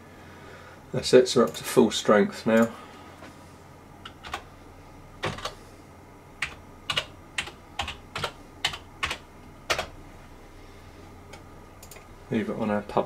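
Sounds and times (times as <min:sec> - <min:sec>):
computer keyboard typing: 0:04.0 - 0:04.5, 0:05.2 - 0:05.6, 0:06.4 - 0:09.9, 0:11.3 - 0:12.1.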